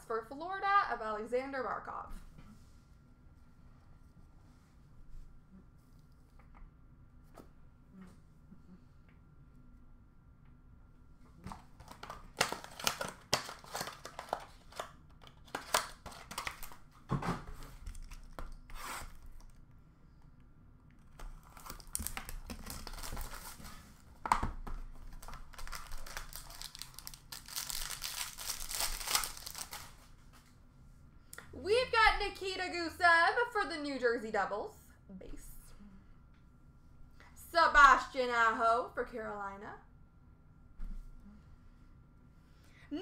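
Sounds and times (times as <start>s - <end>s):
packaging ripping: 11.5s - 16.8s, 21.0s - 23.6s, 25.0s - 30.0s
packaging crinkling: 11.5s - 16.9s, 17.8s - 19.6s, 21.0s - 23.8s, 24.5s - 30.1s.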